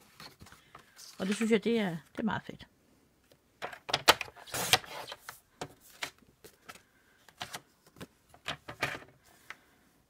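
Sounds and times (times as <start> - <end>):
paper rustling and sliding: 0.0 - 1.6.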